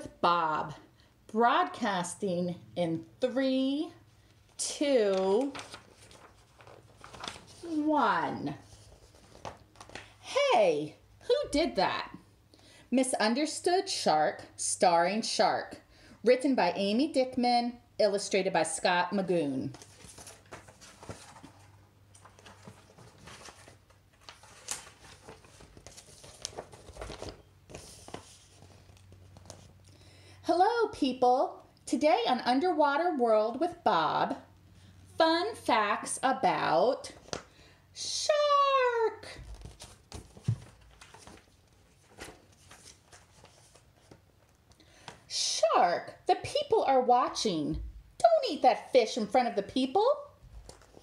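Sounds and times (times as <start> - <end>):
book pages rustling: 4.2 - 10.2, 19.6 - 29.9, 37.1 - 37.5, 39.4 - 45.2, 50.4 - 51.0
woman calling out: 38.0 - 39.4
book pages clicking: 50.6 - 51.0.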